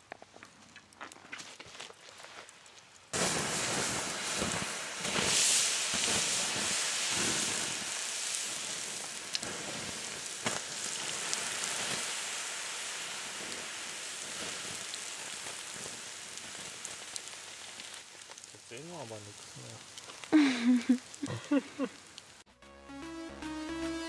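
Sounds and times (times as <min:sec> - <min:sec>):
embers hissing and sizzling: 0:00.0 - 0:22.5
sharp pops: 0:10.4 - 0:10.7.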